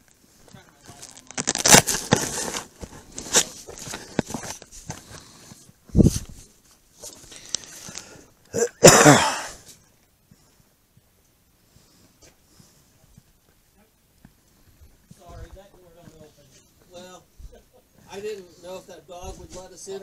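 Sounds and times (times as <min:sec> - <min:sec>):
body-worn camera rustling: 0:00.0 - 0:08.2.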